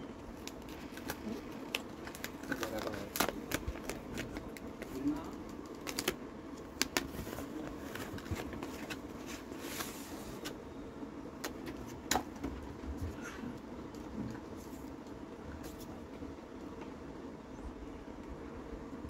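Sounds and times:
steady low hum: 0.0s - 19.0s
cardboard packaging clicks and taps: 0.4s - 9.0s
paper rustling: 0.4s - 10.6s.

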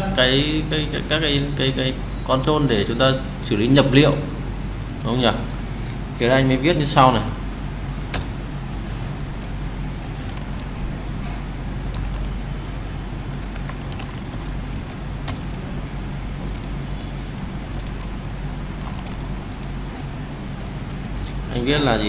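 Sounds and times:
steady low hum: 0.0s - 22.0s
keyboard typing clicks: 9.3s - 10.9s, 11.8s - 19.8s.

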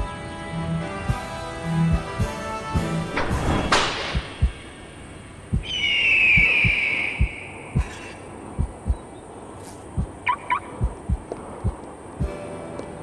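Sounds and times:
heartbeat thuds: 1.9s - 2.1s, 4.0s - 4.6s, 5.5s - 9.2s, 9.9s - 12.4s.

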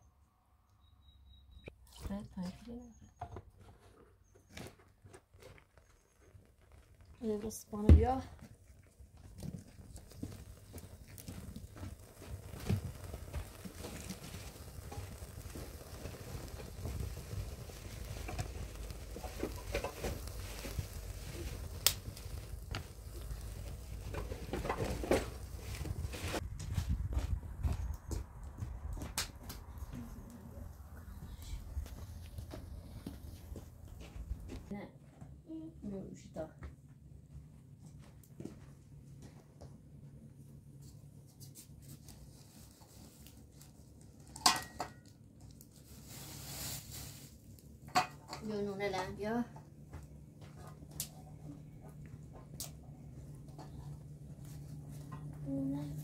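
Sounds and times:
twig fire crackling: 5.2s - 34.7s, 40.8s - 56.0s
sharp crack of fire: 6.7s - 27.0s, 29.0s - 34.7s, 41.4s - 56.0s
plastic bag rustling: 9.3s - 26.4s, 45.7s - 47.5s
sticks laid on fire: 9.7s - 26.4s
metal pots clinking: 44.4s - 45.1s, 47.9s - 48.4s.

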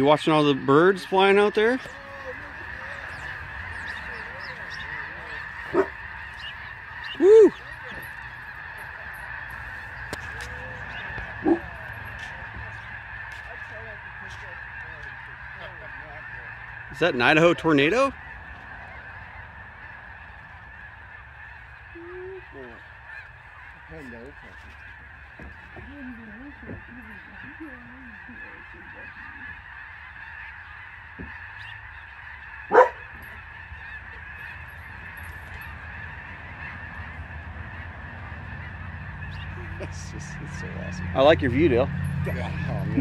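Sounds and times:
flock of geese honking: 0.0s - 43.0s
loud sharp goose call: 0.0s - 43.0s.

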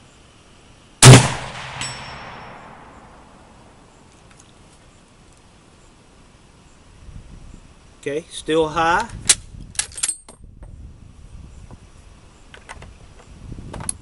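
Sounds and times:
rifle shot: 1.0s - 3.7s.

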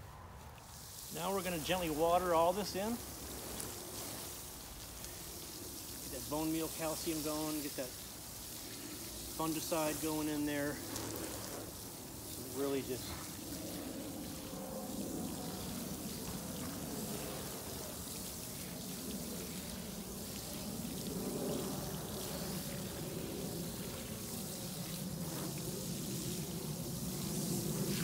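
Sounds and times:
hose water pouring onto soil: 0.4s - 28.0s.

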